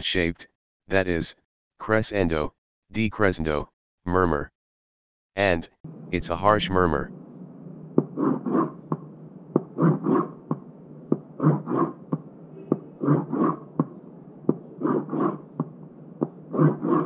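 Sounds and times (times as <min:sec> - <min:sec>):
harsh scraping murmur: 0:05.9 - 0:13.7
pen tapping on cardboard: 0:08.9 - 0:12.9.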